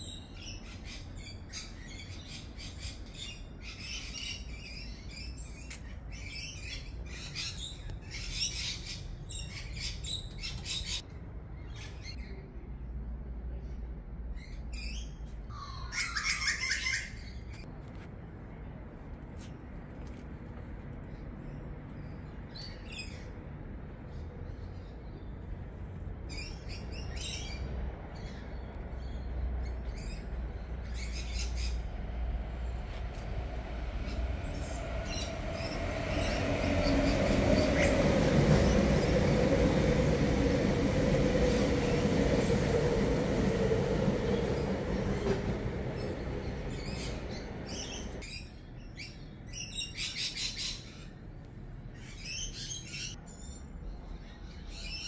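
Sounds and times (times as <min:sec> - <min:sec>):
passing vehicle rumble: 0:17.6 - 0:48.3
birds chirping: 0:26.2 - 0:51.2.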